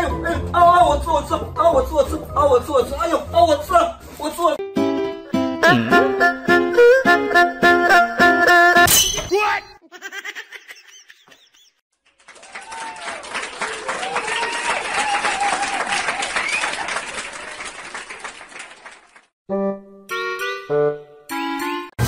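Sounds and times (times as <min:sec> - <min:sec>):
applause with cheering: 0:12.0 - 0:19.3.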